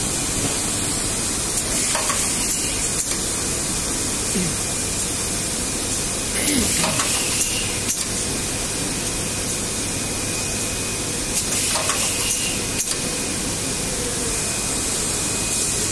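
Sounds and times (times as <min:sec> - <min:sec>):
machine rushing hiss: 0:00.0 - 0:15.9
pneumatic press clicks: 0:01.6 - 0:03.3, 0:06.8 - 0:08.2, 0:11.4 - 0:13.1.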